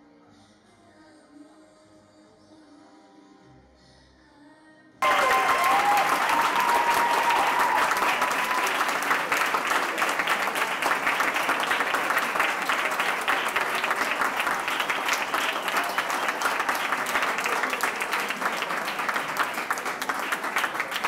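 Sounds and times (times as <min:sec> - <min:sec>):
audience applauding: 0:05.0 - 0:21.0.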